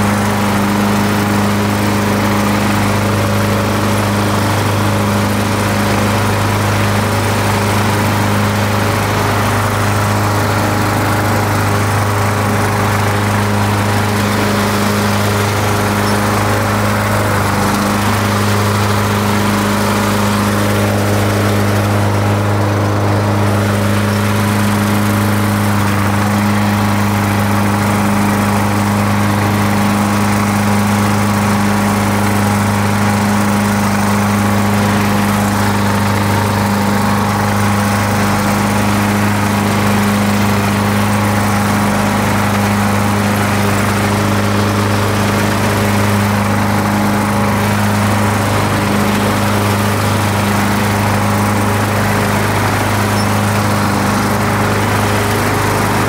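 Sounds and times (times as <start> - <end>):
riding lawn mower engine: 0.0 - 56.0.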